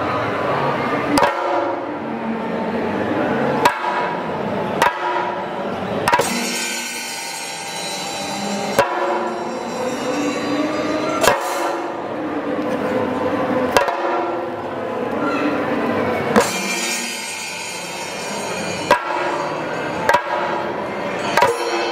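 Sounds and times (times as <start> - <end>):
background din: 3.6 - 12.2, 16.4 - 21.9
drum strokes with sticks: 6.1 - 12.0, 16.3 - 21.9.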